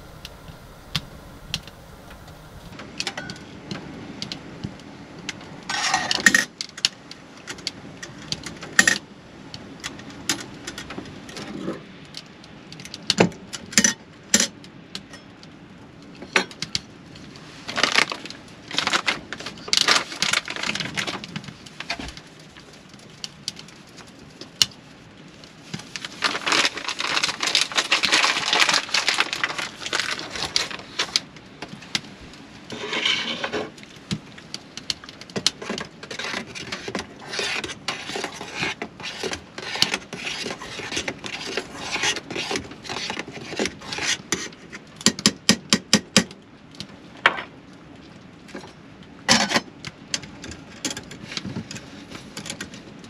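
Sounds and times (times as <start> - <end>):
packet rustling: 26.0 - 31.1.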